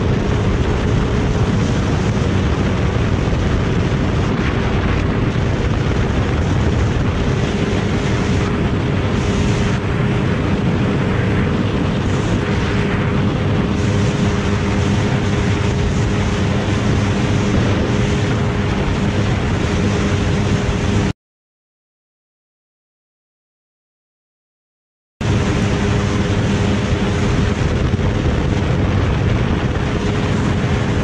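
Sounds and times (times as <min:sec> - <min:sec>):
motorcycle engines cruising: 0:00.0 - 0:21.0
wind rush on microphone: 0:00.0 - 0:21.1, 0:25.2 - 0:31.0.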